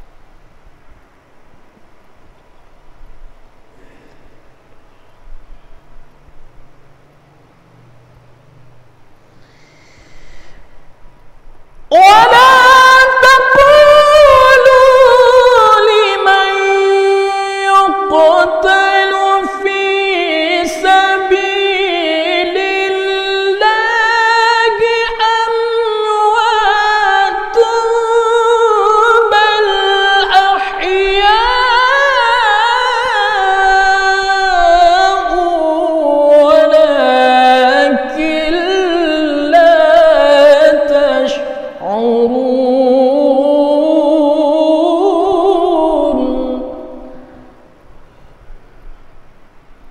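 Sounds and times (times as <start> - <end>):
man chanting melodically: 11.9 - 47.5.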